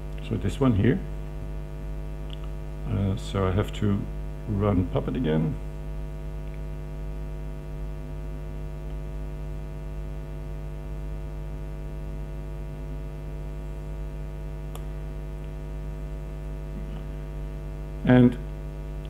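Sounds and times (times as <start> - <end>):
electrical mains hum: 0.0 - 19.0
faint click: 2.2 - 2.6.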